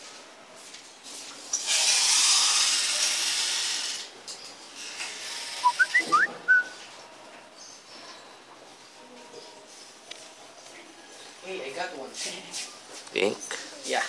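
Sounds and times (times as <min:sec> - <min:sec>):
loud rushing hiss: 0:01.6 - 0:04.1
rising whistle-like chirps: 0:05.6 - 0:06.8.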